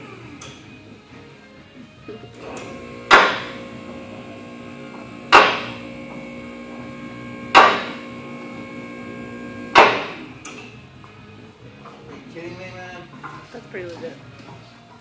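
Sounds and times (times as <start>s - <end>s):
lift power unit humming: 2.3s - 10.8s.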